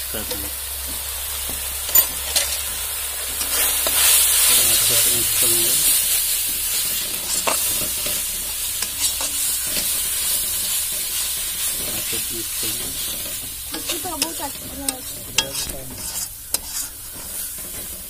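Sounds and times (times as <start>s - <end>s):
spice paste sizzling in oil: 0.0s - 18.0s
spatula scraping metal pan: 5.9s - 18.0s.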